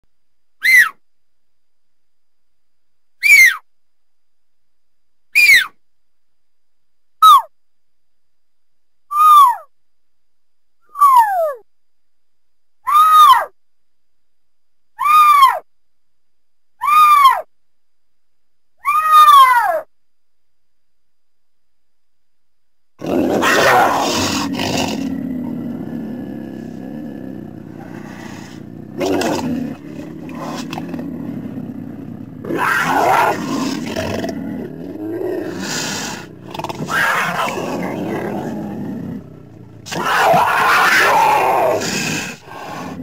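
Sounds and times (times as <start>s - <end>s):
mountain lion calling: 23.0s - 43.0s.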